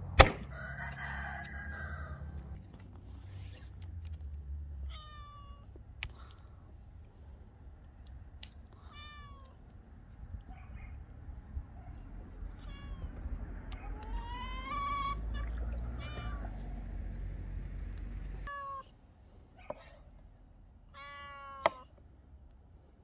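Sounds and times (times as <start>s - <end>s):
cat meowing: 4.9s - 5.8s, 8.8s - 9.6s, 12.6s - 13.2s, 13.8s - 16.6s, 18.4s - 19.0s, 20.9s - 21.9s.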